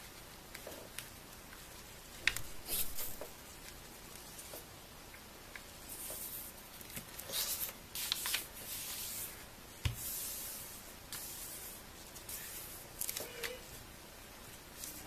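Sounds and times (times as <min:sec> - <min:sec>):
paper rustling on a table: 0:05.9 - 0:13.8.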